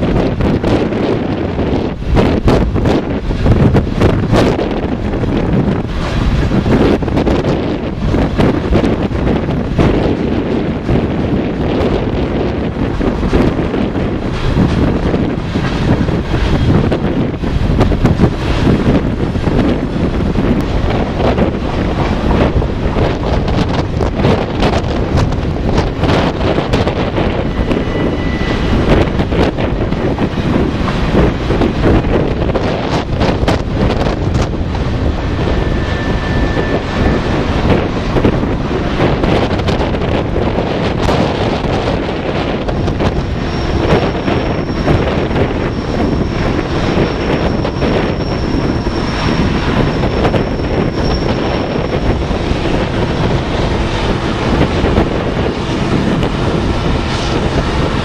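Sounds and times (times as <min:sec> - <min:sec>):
diesel locomotive drone: 0:00.0 - 0:58.0
freight train rumble: 0:00.0 - 0:58.0
wind buffeting microphone: 0:00.0 - 0:58.0
thin high squeal: 0:43.3 - 0:52.4.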